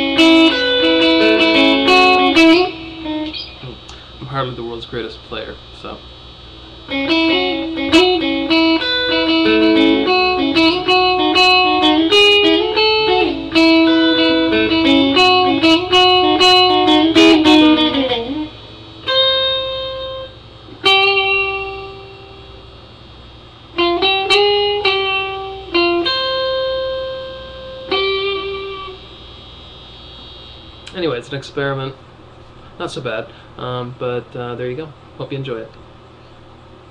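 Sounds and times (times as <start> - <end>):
electric guitar notes: 0.0 - 4.6, 5.7 - 31.4.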